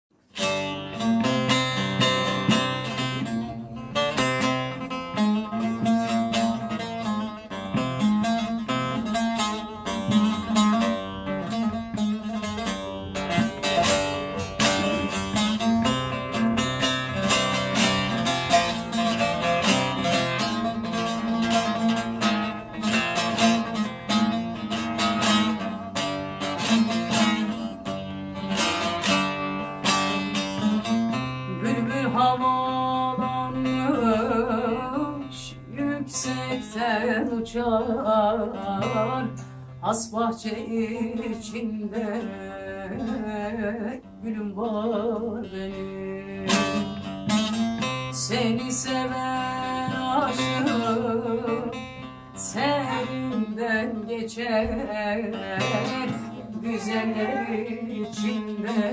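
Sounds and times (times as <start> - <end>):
long-necked lute rapidly picked: 0.4 - 39.5
woman singing: 31.1 - 47.1, 47.8 - 58.9.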